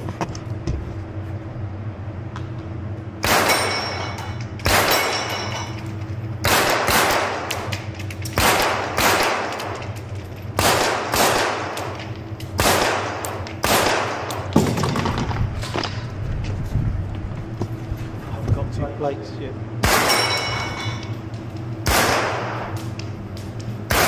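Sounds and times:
rifle shots echoing indoors: 3.2 - 3.8, 4.6 - 5.3, 6.4 - 9.9, 10.6 - 15.1, 19.8 - 20.4, 21.8 - 22.9.

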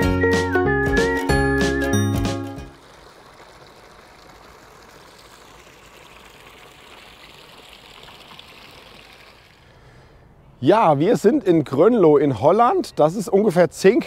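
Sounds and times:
faint outdoor hiss: 2.5 - 14.0.

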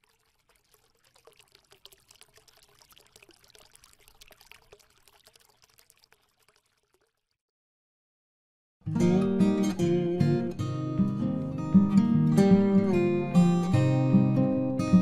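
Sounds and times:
water pouring and trickling: 0.0 - 7.4.

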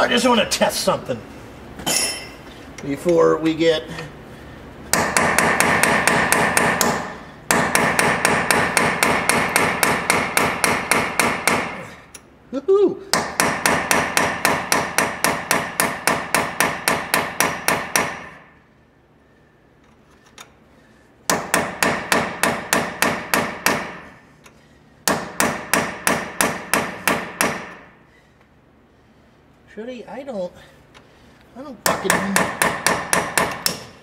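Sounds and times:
hammer striking steel chisel: 4.9 - 11.9, 13.1 - 18.5, 21.3 - 24.1, 25.0 - 27.9, 31.8 - 34.0.

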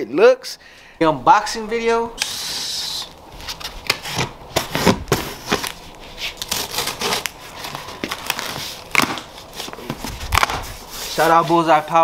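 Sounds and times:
packing tape pulled off: 2.2 - 11.4
cardboard crackles and scrapes: 3.4 - 12.0.

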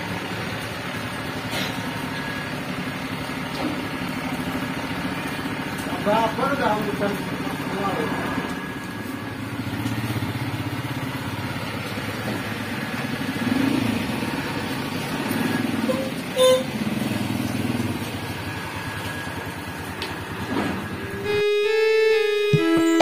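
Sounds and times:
small motorcycle engines revving: 0.0 - 21.4
horn beep: 20.9 - 23.0.

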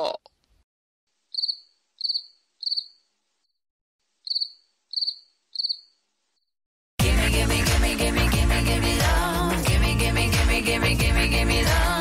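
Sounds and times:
cricket chirping: 1.3 - 3.0, 4.2 - 6.0
loud pop music: 7.0 - 12.0.

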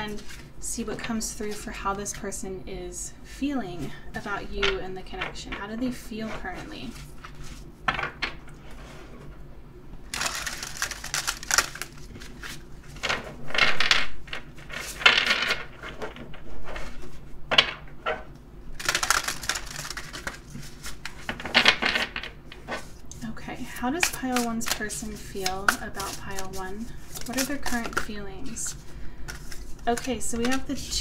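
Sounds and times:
cards being shuffled: 10.1 - 17.2, 18.8 - 22.9, 23.9 - 31.0.

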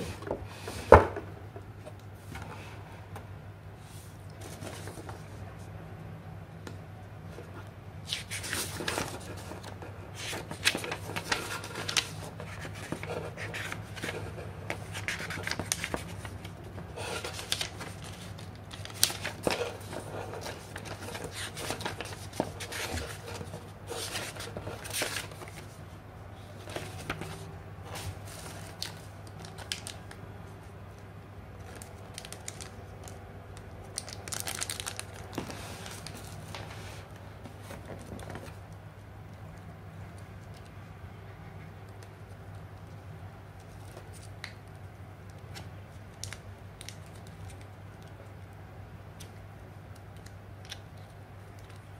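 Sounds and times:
steady low hum: 0.0 - 34.0
paper pages rustling: 4.3 - 5.3, 7.5 - 25.9, 26.5 - 30.2, 34.0 - 38.6.

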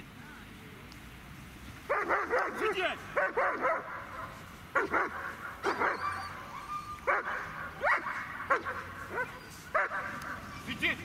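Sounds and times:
dog barking: 1.9 - 10.7.

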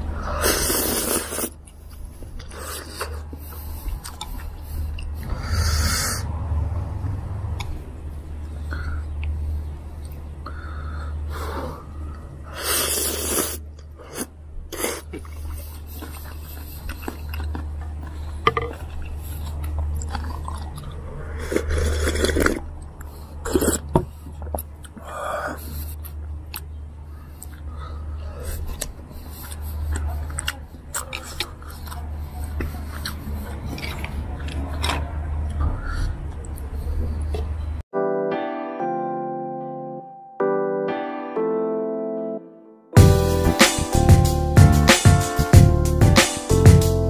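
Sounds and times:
noisy slurping: 0.0 - 1.7, 12.5 - 25.8
person chewing: 0.2 - 5.9, 11.6 - 37.3.

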